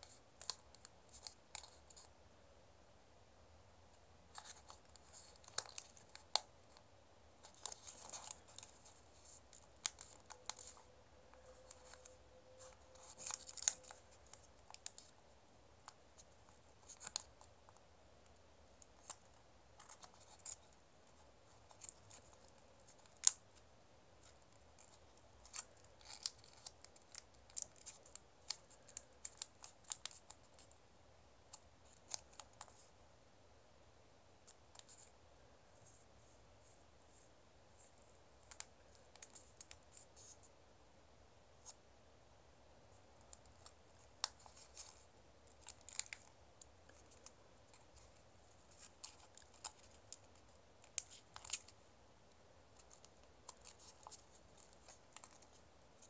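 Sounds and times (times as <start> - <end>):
paper being folded and creased: 4.3 - 6.8, 7.4 - 15.2, 15.8 - 17.8, 24.2 - 30.8, 43.2 - 51.8, 52.8 - 56.0.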